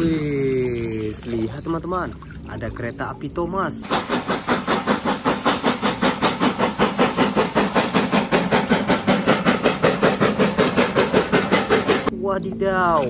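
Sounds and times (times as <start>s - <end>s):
steam locomotive chuffing: 3.8s - 12.2s.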